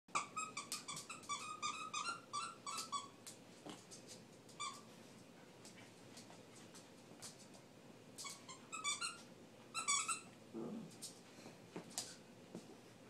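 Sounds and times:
squeaky dog toy squeaking: 0.1s - 3.2s, 8.2s - 10.3s.

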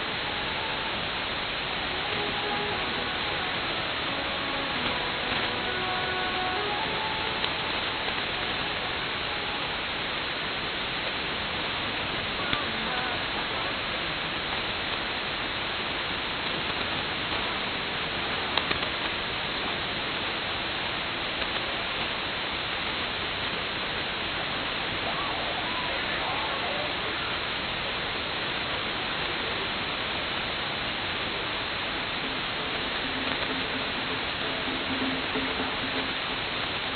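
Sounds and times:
faint radio station audio: 0.0s - 36.9s
radio static hiss: 0.0s - 36.9s
static crackles: 0.0s - 36.9s.

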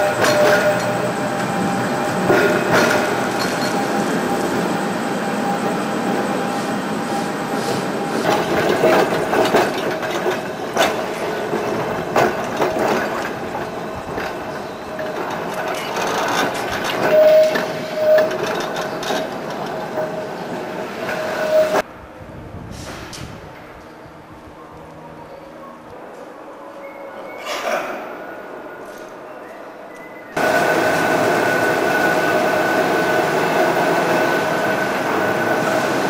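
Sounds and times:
tram wheels clicking over rail joints: 0.0s - 4.7s, 7.1s - 21.8s, 30.4s - 36.0s
tram whine: 0.0s - 36.0s
wheel squeals: 5.3s - 21.8s.

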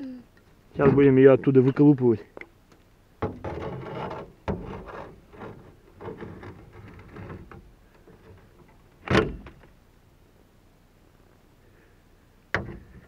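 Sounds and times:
rope scraping and rustling: 3.5s - 8.9s.

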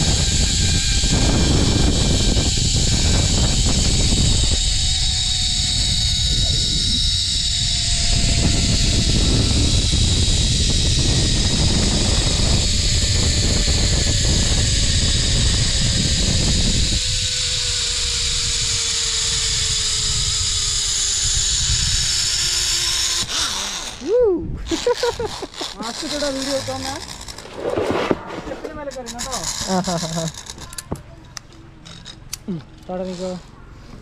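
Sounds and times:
wind on microphone: 0.0s - 25.4s
zipline pulley hiss and whine: 0.0s - 34.0s.

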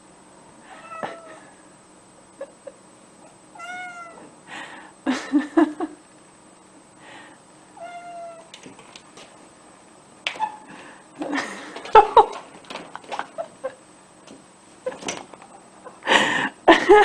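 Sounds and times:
cat meowing: 3.6s - 4.2s, 7.8s - 8.5s.

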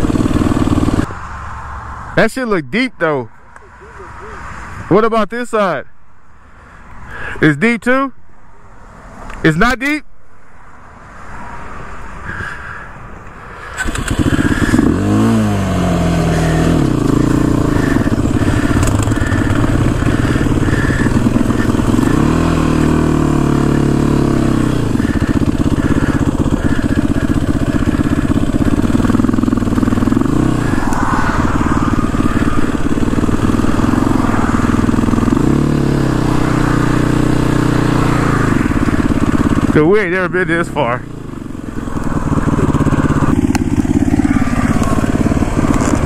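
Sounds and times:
off-road vehicle engine revving: 0.0s - 1.1s, 13.6s - 46.0s.

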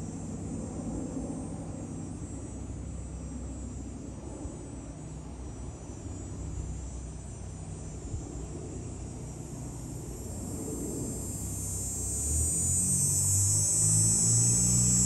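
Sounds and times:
jet engines rumbling: 8.2s - 15.0s.

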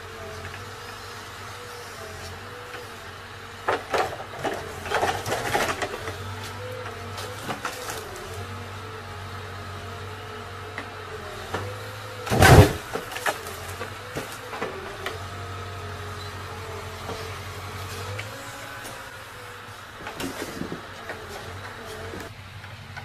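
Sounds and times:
hydraulic whine: 0.0s - 22.4s
engine and hydraulic pump hum: 0.0s - 23.0s
grapple clattering with logs: 3.5s - 8.8s, 10.6s - 23.0s.

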